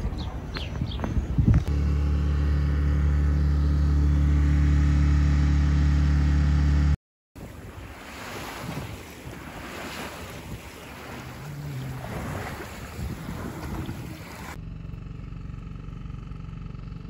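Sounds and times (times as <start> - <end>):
wind on microphone: 0.0 - 1.8, 7.4 - 14.6
boat engine running: 0.0 - 17.0
water washing past hull: 7.4 - 14.6.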